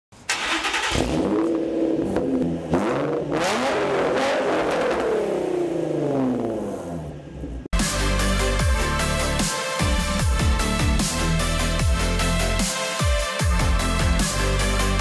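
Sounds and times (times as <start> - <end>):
car engine revving: 0.3 - 8.0.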